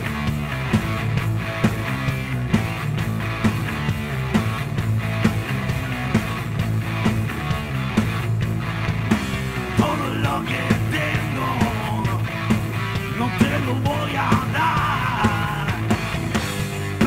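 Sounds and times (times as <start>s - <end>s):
bass guitar: 0.0s - 17.0s
drums: 0.0s - 17.0s
electric guitar: 0.0s - 17.0s
person singing: 9.7s - 12.3s, 13.1s - 16.0s.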